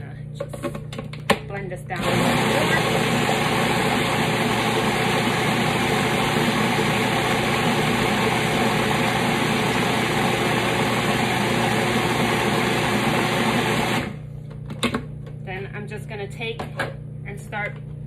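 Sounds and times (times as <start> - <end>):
food processor motor running: 1.9 - 14.2.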